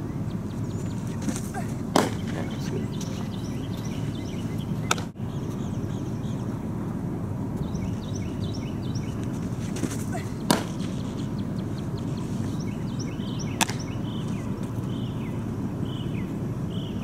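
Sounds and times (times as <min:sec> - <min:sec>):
birds chirping: 0:00.0 - 0:17.0
low outdoor noise: 0:00.0 - 0:17.0
softball smacking into mitt: 0:01.2 - 0:02.3, 0:04.9 - 0:05.1, 0:09.8 - 0:11.0, 0:13.6 - 0:13.8.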